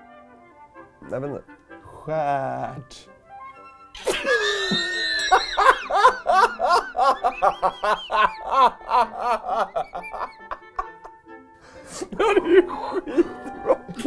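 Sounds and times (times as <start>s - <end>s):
man laughing hard: 4.0s - 11.2s, 12.0s - 14.0s.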